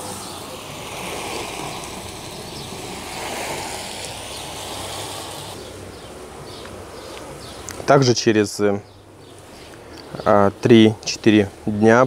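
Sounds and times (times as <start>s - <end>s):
hose spraying water: 0.0s - 5.7s.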